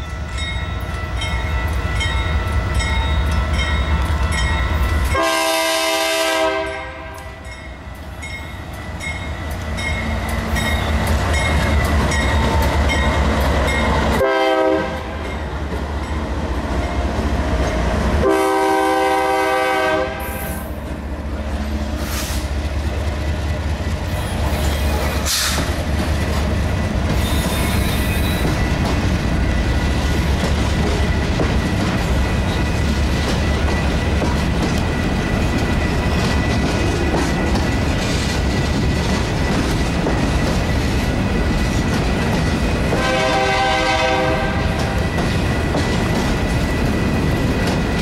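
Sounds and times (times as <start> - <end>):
train wheels rumbling on rails: 0.0 - 48.0
train horn chord: 5.1 - 7.4, 14.2 - 15.3, 18.2 - 20.7, 42.9 - 45.0.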